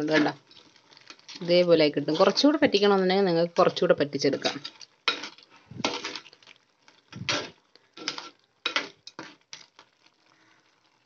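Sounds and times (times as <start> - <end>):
spoon scraping pot: 0.0 - 3.0, 3.7 - 6.4, 7.2 - 9.4.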